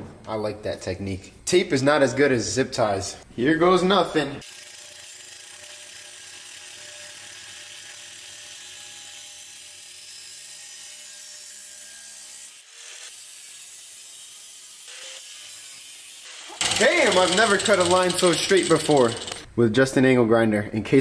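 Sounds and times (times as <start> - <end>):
angle grinder cutting metal pipe: 4.4 - 19.5.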